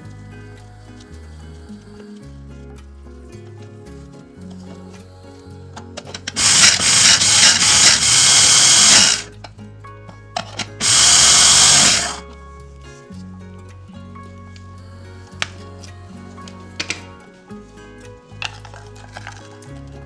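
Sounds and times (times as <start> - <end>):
electric mini chopper running: 6.4 - 9.3, 10.8 - 12.2.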